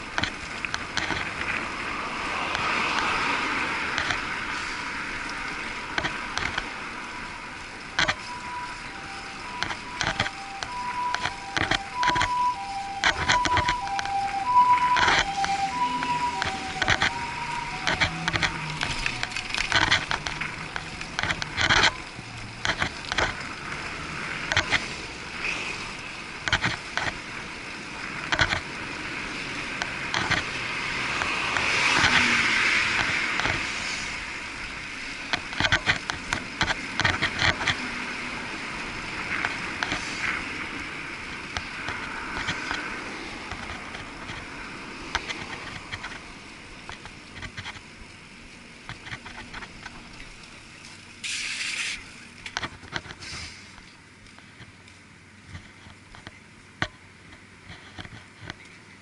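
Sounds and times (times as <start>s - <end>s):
bike rattles and clicks: 0.0s - 15.7s, 16.3s - 59.0s
city traffic hiss: 0.0s - 59.0s
vehicle passing: 0.5s - 26.4s, 27.2s - 35.2s.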